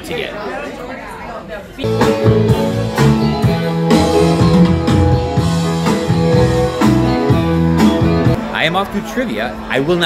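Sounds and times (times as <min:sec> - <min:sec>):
live rock band playing: 0:01.8 - 0:08.4.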